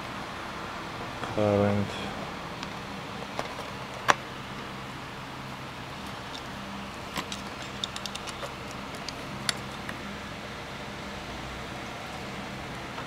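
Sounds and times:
test leads clicking: 0:07.2 - 0:10.0.

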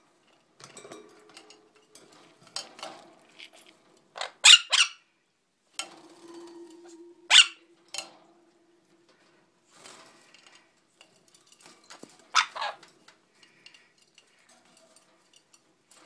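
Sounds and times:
parrot screeching: 0:06.3 - 0:07.8.

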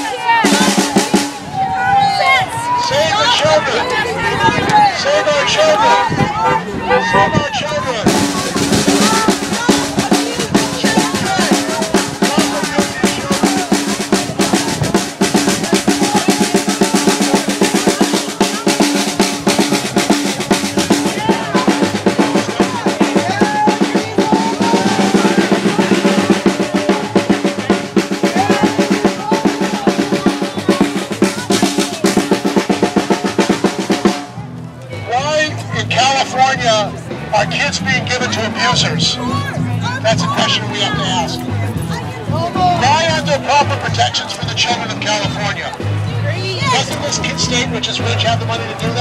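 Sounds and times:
drums beaten rapidly: 0:00.0 - 0:34.4, 0:35.8 - 0:49.0
crowd voices: 0:00.0 - 0:49.0.

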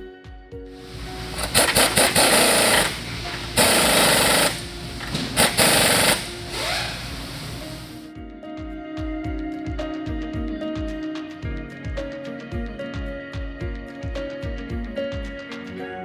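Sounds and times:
impact wrench hammering: 0:00.8 - 0:08.0.

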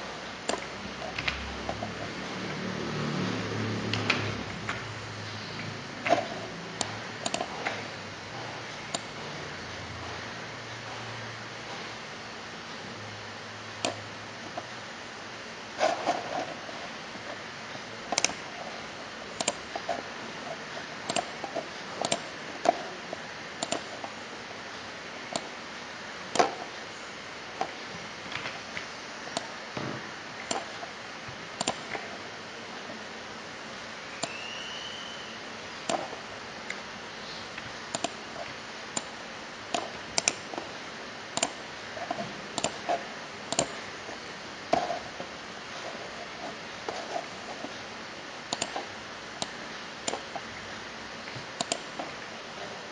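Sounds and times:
steady background hiss: 0:00.0 - 0:52.9
computer mouse clicking: 0:05.6 - 0:07.8, 0:13.8 - 0:14.7, 0:18.1 - 0:18.6, 0:19.4 - 0:22.9, 0:23.6 - 0:24.2, 0:25.3 - 0:25.5, 0:26.3 - 0:26.6, 0:30.4 - 0:31.0, 0:31.6 - 0:32.2, 0:35.8 - 0:36.8, 0:37.6 - 0:40.7, 0:41.3 - 0:43.8, 0:48.5 - 0:50.5, 0:51.4 - 0:52.2.

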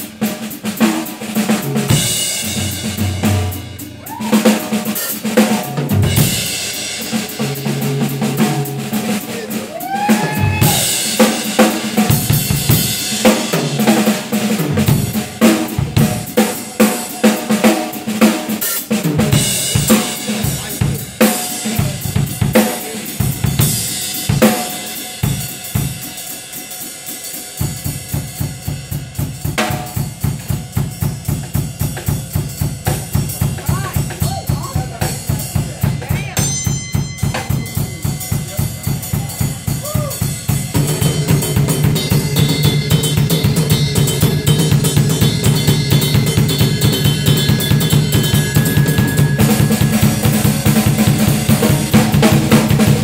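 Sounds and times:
drum kit played hard: 0:00.0 - 0:53.0
live rock band: 0:00.0 - 0:53.0
snare and bass drum: 0:00.0 - 0:53.0
bass guitar notes: 0:32.7 - 0:53.0.

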